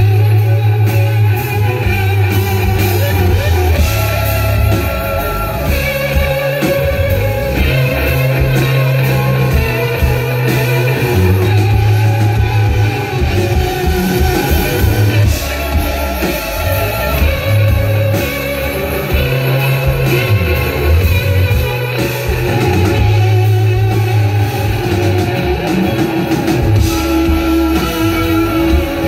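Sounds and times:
deep bass line: 0.0 - 29.0
electric guitar: 0.0 - 29.0.

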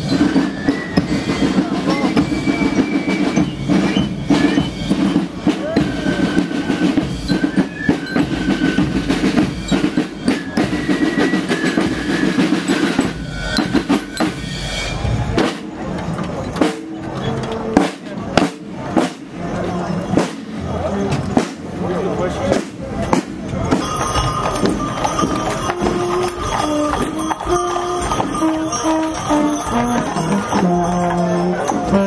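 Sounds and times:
snare drums marching beat: 0.0 - 14.4, 17.8 - 19.4, 22.5 - 31.3.

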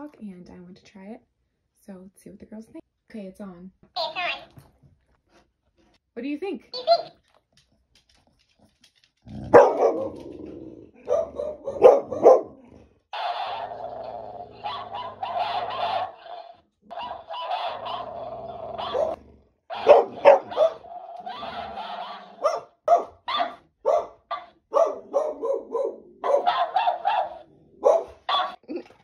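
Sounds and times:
dog barking: 9.5 - 10.2, 11.0 - 12.6, 14.6 - 28.6.

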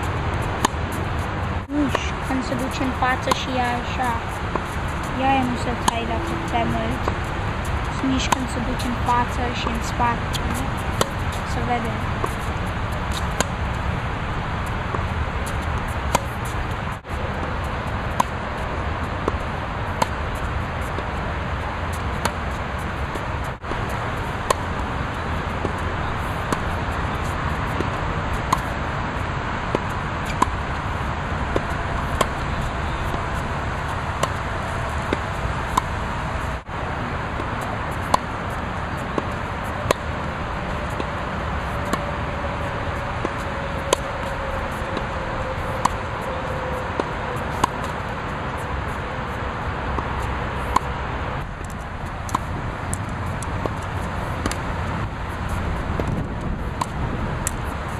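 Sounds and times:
steady background noise: 0.0 - 57.9
tennis ball hit by racket: 0.3 - 0.8, 2.6 - 13.8, 14.9 - 17.5, 20.0 - 20.2, 22.1 - 22.5, 23.5 - 24.7, 25.6 - 28.7, 29.7 - 30.8, 31.5 - 35.9, 37.9 - 42.0, 42.6 - 48.0, 50.0 - 57.7.

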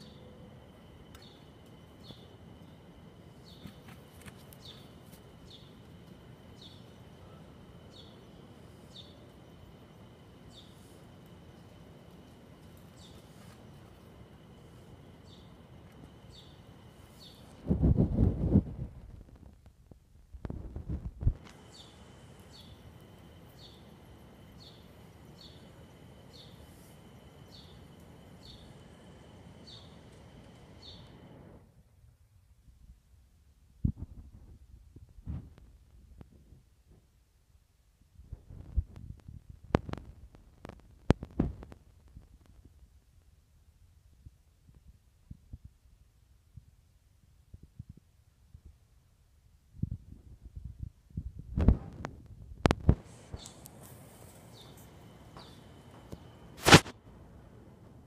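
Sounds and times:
thin high whine: 0.0 - 19.6, 20.5 - 31.8, 52.9 - 58.0.

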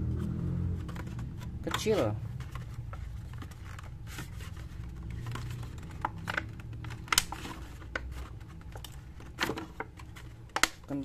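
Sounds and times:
stiff plastic packaging clicking: 5.0 - 11.0.

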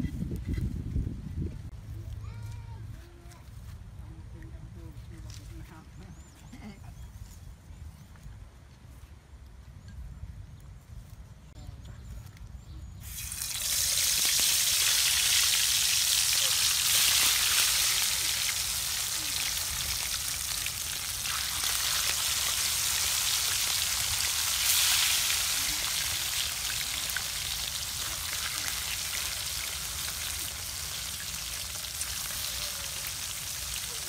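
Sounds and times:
fish sizzling in oil: 13.0 - 34.0.

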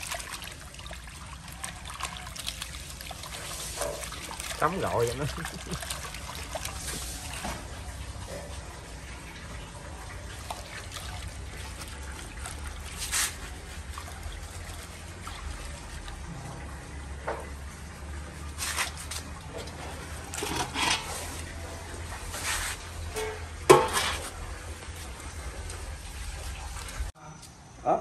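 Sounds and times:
water splashing onto concrete: 0.0 - 8.2, 9.0 - 22.8
water sloshing in steel basin: 0.0 - 27.1.

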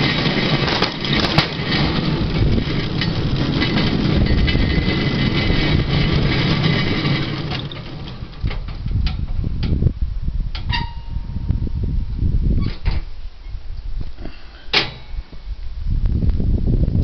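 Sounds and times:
trolley wheels rattling on rails: 0.0 - 9.8, 10.6 - 11.3.

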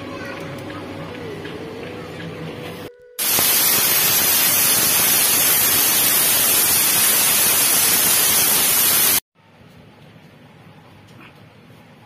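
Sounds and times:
pressure cooker steam hiss: 3.2 - 9.2.

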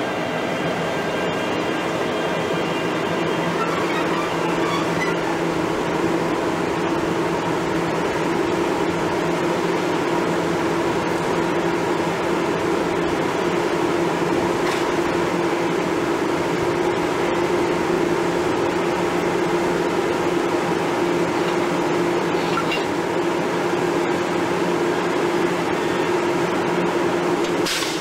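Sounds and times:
electric locomotive humming: 0.0 - 28.0.

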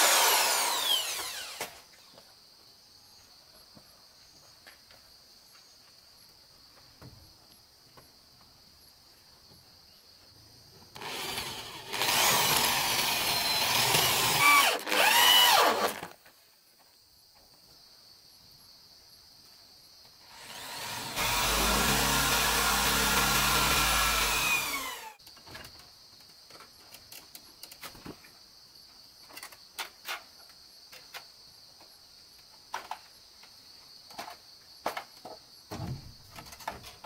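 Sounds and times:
electric drill boring into wood: 0.0 - 1.8, 11.0 - 16.1, 20.3 - 25.2
high insect drone: 0.0 - 4.8.

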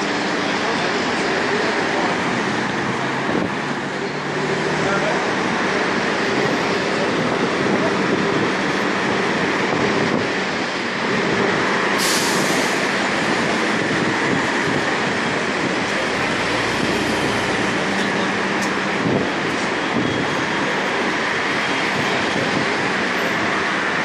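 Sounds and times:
passing vehicles and buses: 0.0 - 24.0
sharp hiss: 12.0 - 12.8.

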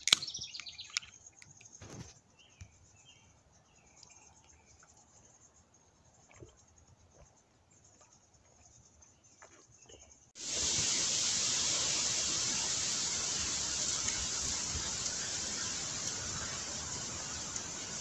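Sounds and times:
faint insect chirping: 0.0 - 18.0
loud steady hiss: 10.4 - 18.0.

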